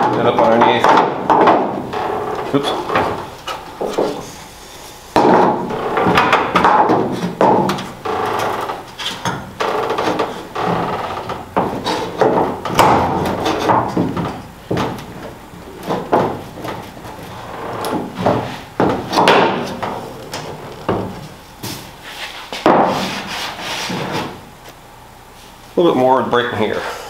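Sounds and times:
wood knocking against sheet metal: 0:00.0 - 0:04.2, 0:05.2 - 0:17.2, 0:17.8 - 0:21.2
wood scraping on metal: 0:05.2 - 0:21.1, 0:22.0 - 0:24.4.

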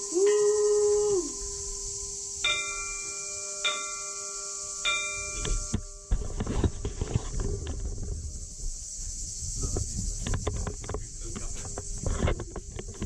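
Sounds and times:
steady hiss: 0:00.0 - 0:13.0
church bell ringing: 0:01.3 - 0:06.2.

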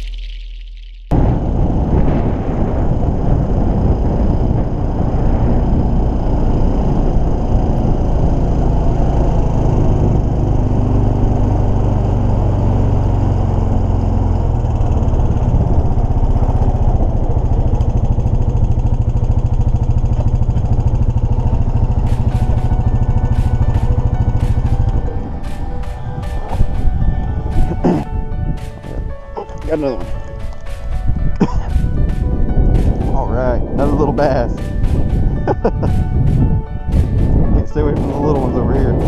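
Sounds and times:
atv engine running: 0:00.0 - 0:39.0.

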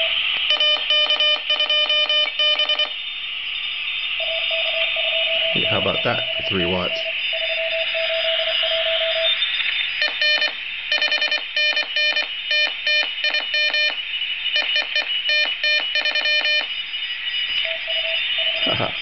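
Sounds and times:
raspy morse code sidetone: 0:00.0 - 0:03.0, 0:04.2 - 0:16.8
shortwave receiver hiss: 0:00.0 - 0:04.2, 0:09.3 - 0:17.6
steady morse tone: 0:00.0 - 0:19.0.

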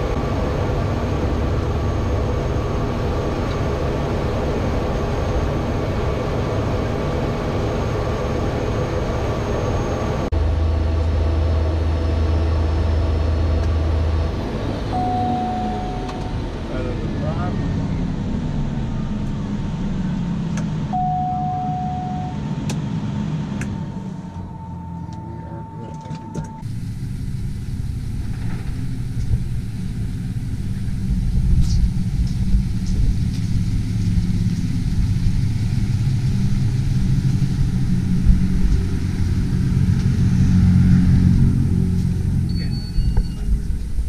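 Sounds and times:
low motor vehicle rumble: 0:00.0 - 0:44.0
turboprop engine running: 0:00.0 - 0:44.0
short steady tone: 0:14.9 - 0:16.5, 0:20.9 - 0:22.4, 0:42.5 - 0:43.7.

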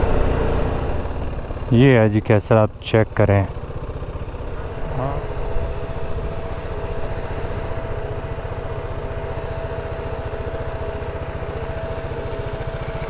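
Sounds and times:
motorcycle engine running: 0:00.0 - 0:13.0
thin steady whine: 0:04.4 - 0:13.0.

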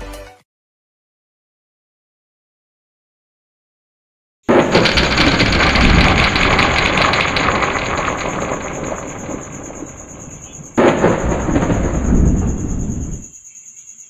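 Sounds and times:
rumbling sound effect: 0:04.5 - 0:13.3.

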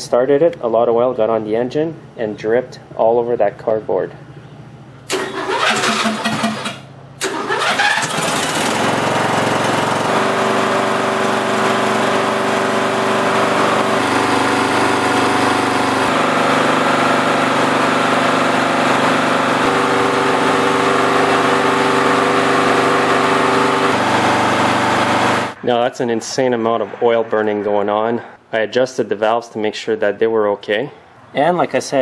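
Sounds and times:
lawn tractor engine starting and running: 0:05.1 - 0:25.6.

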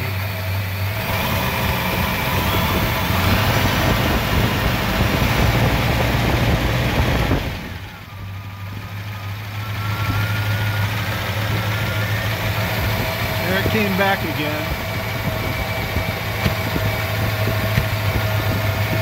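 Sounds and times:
car engine revving and idling: 0:00.0 - 0:19.0
faint mechanical whine: 0:06.9 - 0:19.0.

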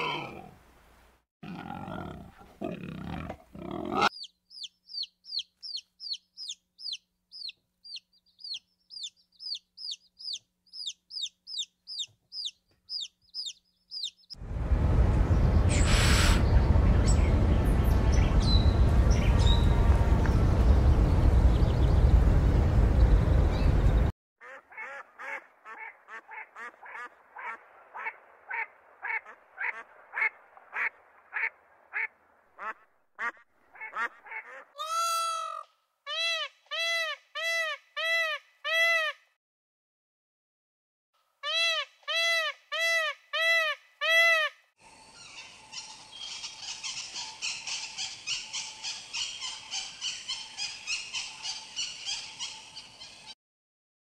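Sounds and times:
raspy bird chatter: 0:04.1 - 0:14.4
peafowl honking calls: 0:24.4 - 0:39.2.

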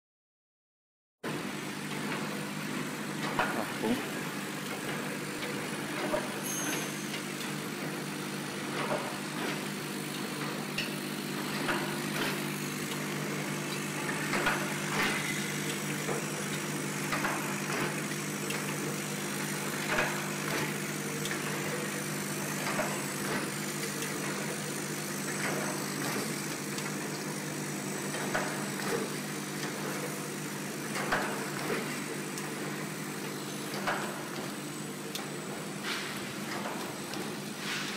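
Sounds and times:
wrapping machine motor hum: 0:07.5 - 0:37.8.

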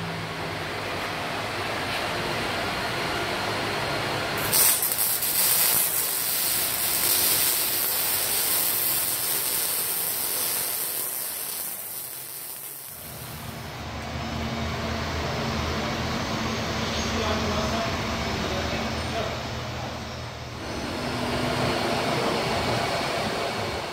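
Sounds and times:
welding hiss and crackle: 0:04.4 - 0:13.7.

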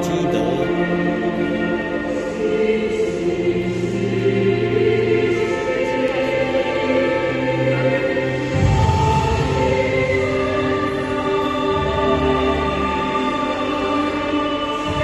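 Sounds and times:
choir singing long held notes: 0:00.0 - 0:15.0.

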